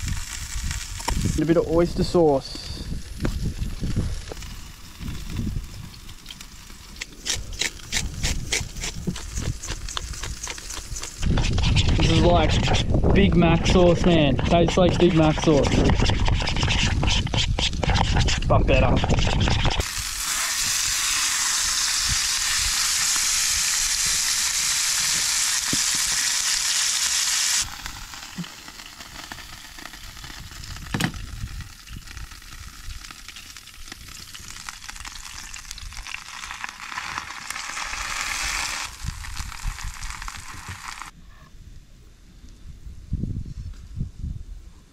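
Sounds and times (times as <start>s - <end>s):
food sizzling in frying pan: 19.8s - 41.1s.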